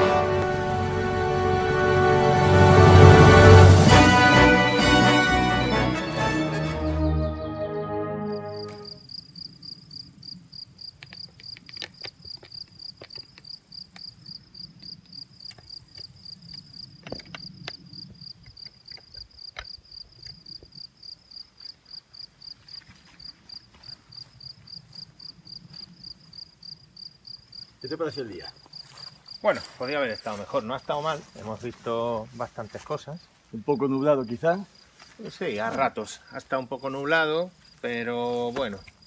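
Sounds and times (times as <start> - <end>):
cricket chirping: 8.2 - 39.0
insects hissing: 8.4 - 39.0.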